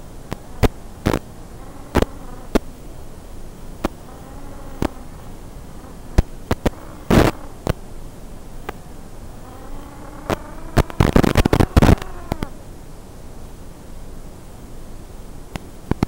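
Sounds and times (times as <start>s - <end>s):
steady hiss: 0.0s - 16.0s
sharp crackles: 0.2s - 2.9s, 3.7s - 7.9s, 9.4s - 12.6s.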